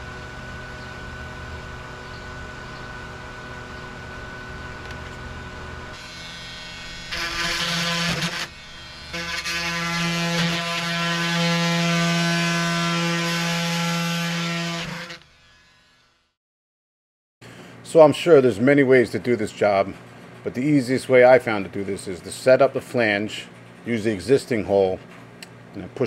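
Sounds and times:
electric power tool motor running: 0.0 - 16.3.

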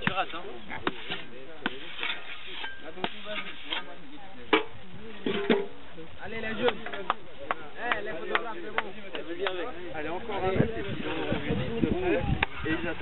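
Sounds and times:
shovel scooping sand: 0.0 - 3.9
people talking: 0.0 - 13.0.

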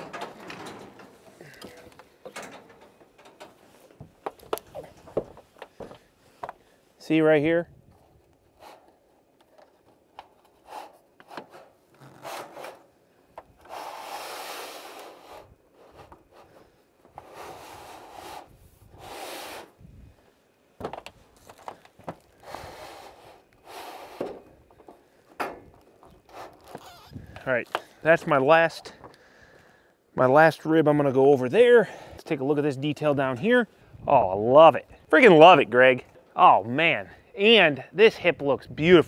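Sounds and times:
metal-on-metal scraping: 0.0 - 5.2.

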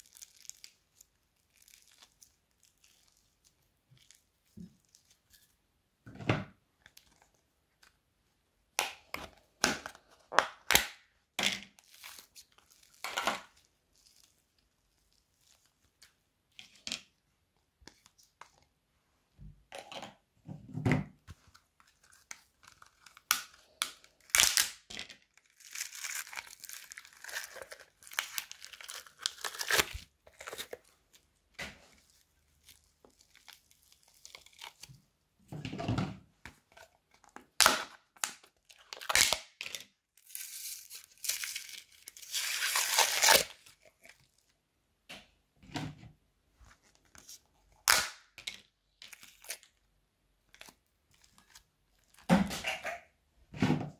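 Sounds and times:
slime crackling and crinkling: 0.0 - 5.6, 11.7 - 16.8, 21.6 - 35.2, 36.5 - 44.6, 48.8 - 53.0.

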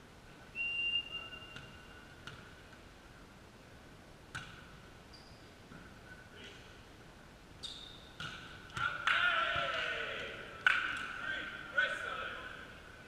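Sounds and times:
volleyball hits: 4.3 - 4.7, 8.2 - 11.2
players shouting: 8.8 - 10.5.

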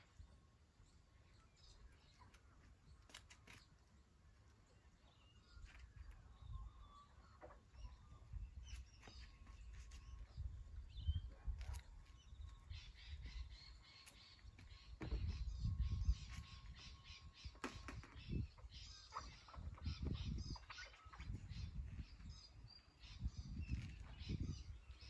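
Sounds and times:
bird chirps and calls: 4.6 - 25.0.

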